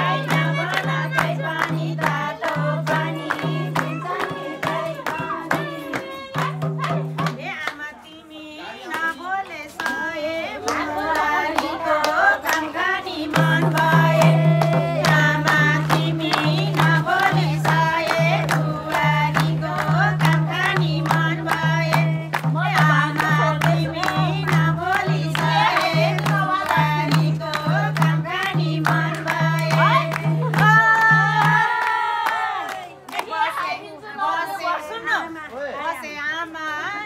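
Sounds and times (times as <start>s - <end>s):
steady drum beat: 0.0s - 7.5s, 12.8s - 31.8s
music with singing: 0.0s - 32.8s.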